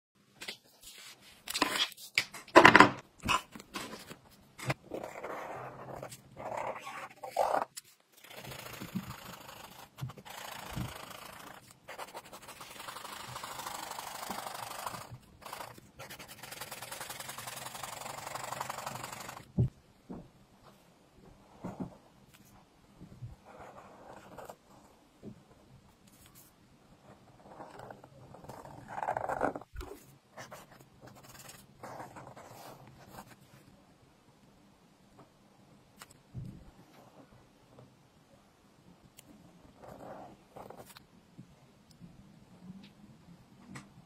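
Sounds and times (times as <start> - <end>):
marker rubbing on paper: 5.0 - 19.5.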